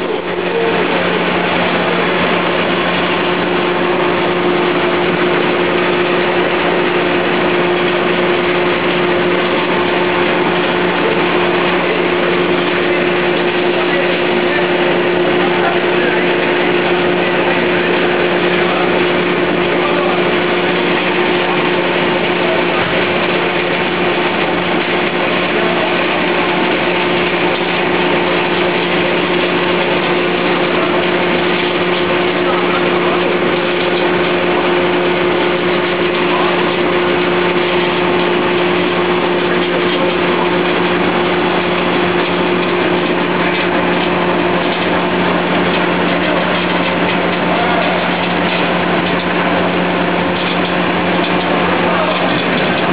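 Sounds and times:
production line machinery running: 0.0s - 52.9s
steady low hum: 0.0s - 52.9s.

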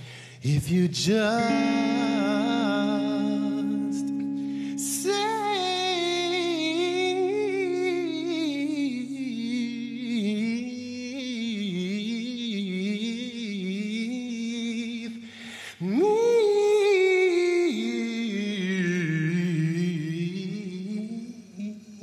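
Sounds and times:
man singing with vibrato: 0.0s - 22.0s
electric guitar chord ringing: 1.0s - 11.1s.

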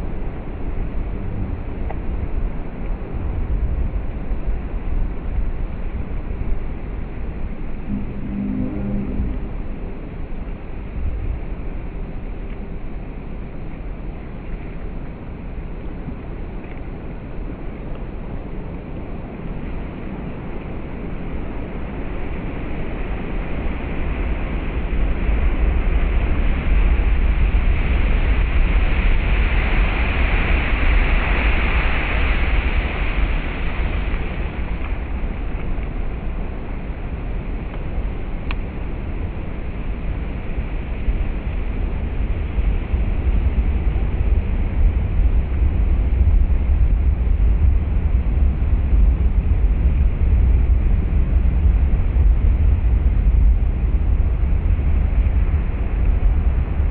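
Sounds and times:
wave hiss: 5.7s - 11.0s, 25.2s - 49.1s.

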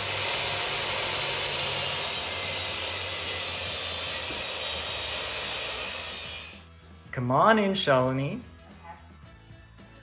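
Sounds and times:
dust extractor running: 0.0s - 2.8s
table saw cutting a board: 0.0s - 6.6s.

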